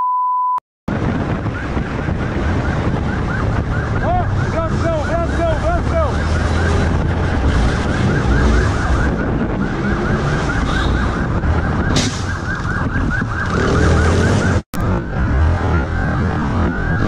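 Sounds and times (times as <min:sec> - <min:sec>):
wind noise: 0:00.9 - 0:17.0
police siren yelping: 0:01.4 - 0:17.0.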